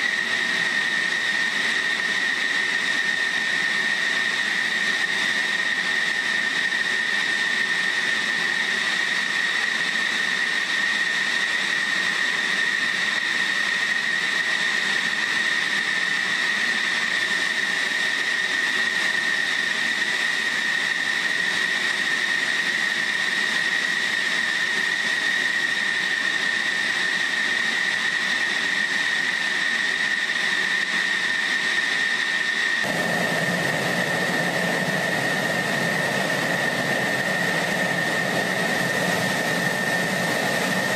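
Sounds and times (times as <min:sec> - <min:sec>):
jet engine whine: 0:00.0 - 0:40.9.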